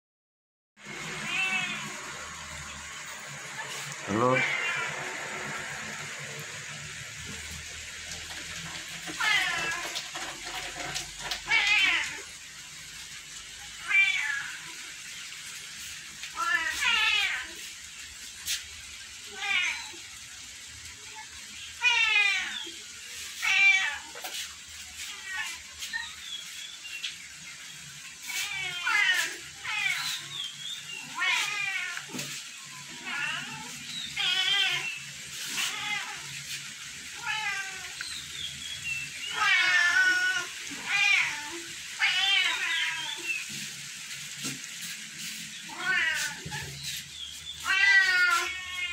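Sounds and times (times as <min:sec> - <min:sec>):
cats meowing: 0:01.0 - 0:02.2, 0:03.7 - 0:05.6, 0:08.2 - 0:12.3, 0:13.8 - 0:14.8, 0:16.3 - 0:17.6, 0:19.2 - 0:20.1, 0:21.1 - 0:24.3, 0:25.0 - 0:26.2, 0:28.2 - 0:30.4, 0:31.0 - 0:36.4, 0:37.0 - 0:38.0, 0:39.3 - 0:43.5, 0:45.6 - 0:48.9
cat meowing: 0:01.2 - 0:02.0, 0:04.1 - 0:05.1, 0:33.0 - 0:34.9, 0:45.7 - 0:46.8, 0:47.6 - 0:48.9.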